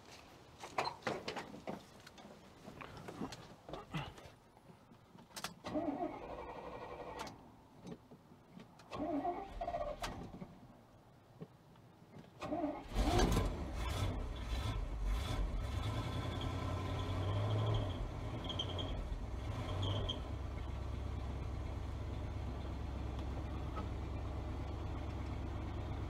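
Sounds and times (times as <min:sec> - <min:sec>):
truck engine running: 0:13.8 - 0:26.0.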